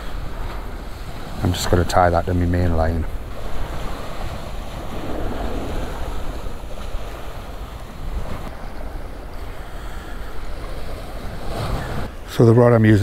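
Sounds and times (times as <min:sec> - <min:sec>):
sea washing against pier: 0:00.0 - 0:12.4
wind buffeting microphone: 0:02.9 - 0:09.7.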